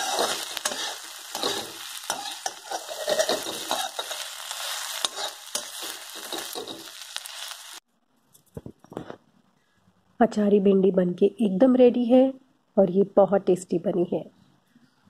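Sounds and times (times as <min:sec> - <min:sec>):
spatula scraping a wok: 0:00.0 - 0:07.8
okra sizzling in oil: 0:00.0 - 0:07.9.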